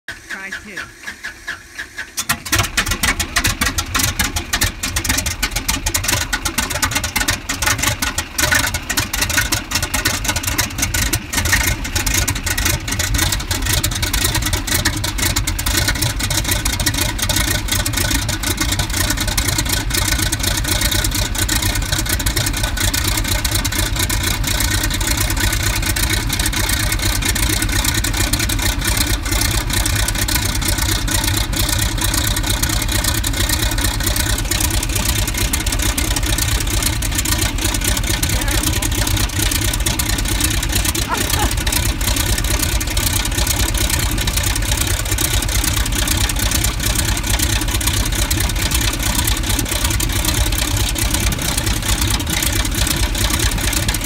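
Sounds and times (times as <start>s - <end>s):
radial engine idling: 0.1s - 54.0s.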